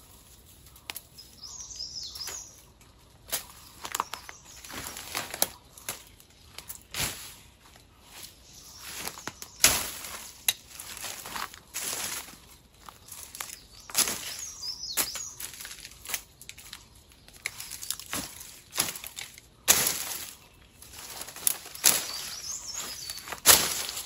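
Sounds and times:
leaves rustling: 0.0s - 24.0s
machete hacking branches: 4.7s - 7.4s, 9.0s - 12.3s, 17.4s - 20.4s, 21.1s - 24.0s.

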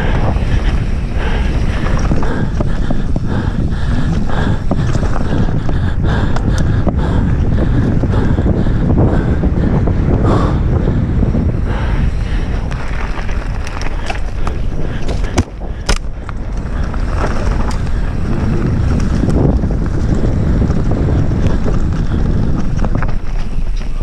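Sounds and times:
tyre and trail noise: 0.0s - 24.0s
wind buffeting microphone: 0.0s - 24.0s
bike knocks and rattles: 12.4s - 24.0s.

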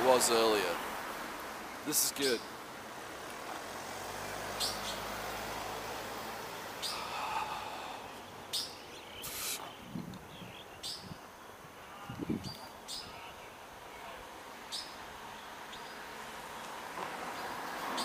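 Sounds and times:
car passing by: 0.0s - 1.7s, 2.9s - 8.2s, 15.6s - 18.0s
roadside noise: 0.0s - 18.0s
small birds chirping: 1.4s - 5.2s, 6.6s - 18.0s.

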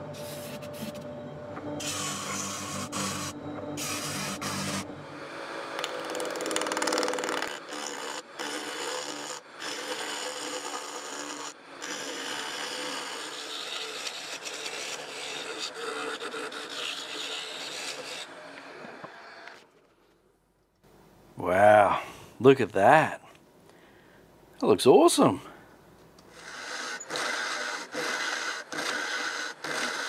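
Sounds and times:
lathe tool scraping hiss: 1.8s - 19.4s, 26.3s - 30.0s.

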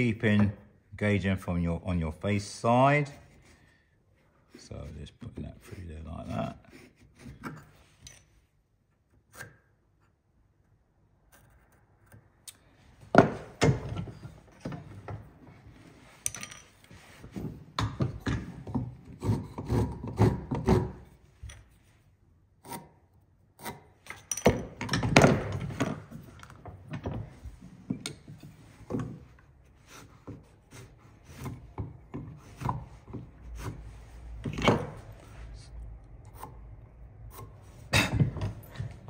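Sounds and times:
marking gauge scratching timber: 18.8s - 21.2s, 29.6s - 35.2s.

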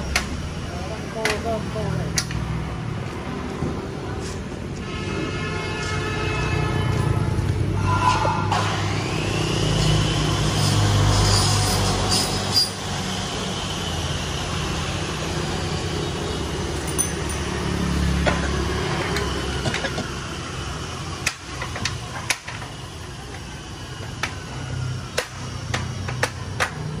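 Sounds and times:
motor scooter passing: 16.7s - 21.1s.

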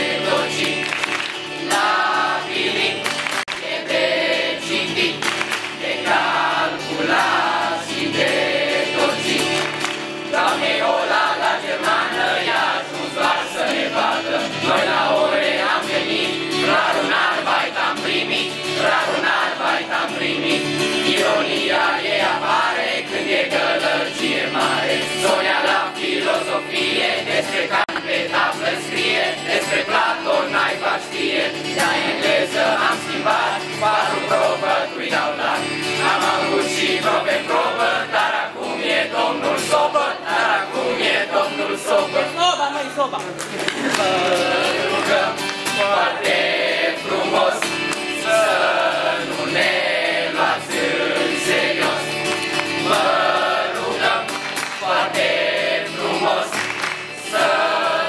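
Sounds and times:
group singing in chorus: 0.0s - 42.4s, 43.7s - 58.0s
acoustic guitar: 0.0s - 58.0s.

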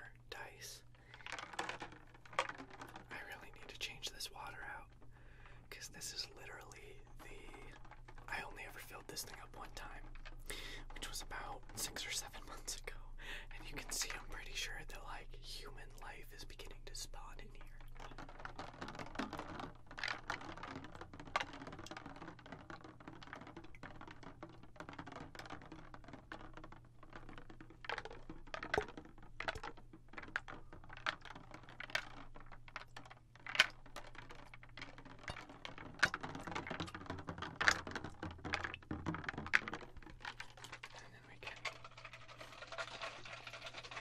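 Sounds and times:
water moving in tube: 0.0s - 44.0s
clicks and taps on plastic: 17.8s - 44.0s.

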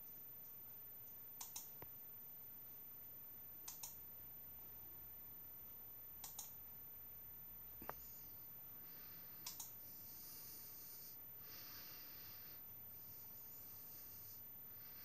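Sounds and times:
computer mouse button clicks: 1.4s - 1.8s, 3.7s - 4.0s, 6.2s - 6.6s, 9.4s - 9.8s.

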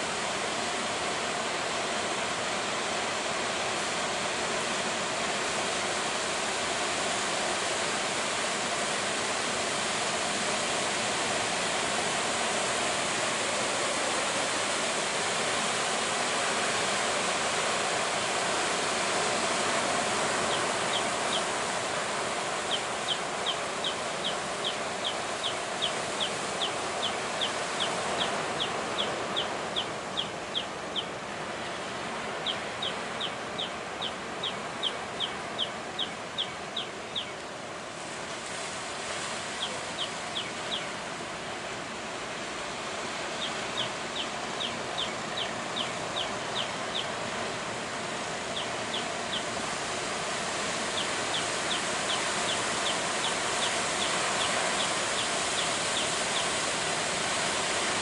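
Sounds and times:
bird chirping rapidly: 20.4s - 21.5s, 22.6s - 31.1s, 32.4s - 37.4s, 39.6s - 40.9s, 43.4s - 47.2s, 48.5s - 49.5s, 50.9s - 56.5s.

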